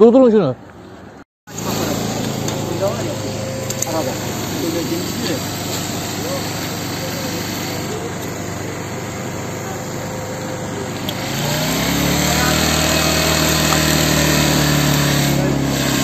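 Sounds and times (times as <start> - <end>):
street noise: 0.0 - 16.0
faint voices: 1.5 - 14.4
engine running steadily: 1.5 - 16.0.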